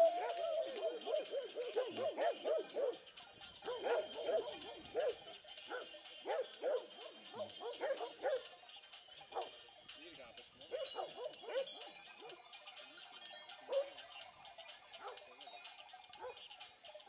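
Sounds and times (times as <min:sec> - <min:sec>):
dog barking: 0:00.1 - 0:03.0, 0:03.6 - 0:08.5, 0:09.3 - 0:09.6, 0:10.7 - 0:12.3, 0:13.7 - 0:13.9, 0:15.0 - 0:15.2, 0:16.2 - 0:16.4.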